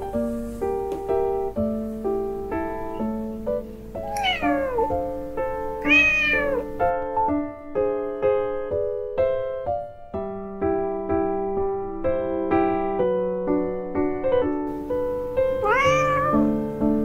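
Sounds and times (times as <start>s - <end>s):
piano music: 0.0s - 17.0s
cat meowing: 4.0s - 5.1s, 5.8s - 6.8s, 15.5s - 16.6s.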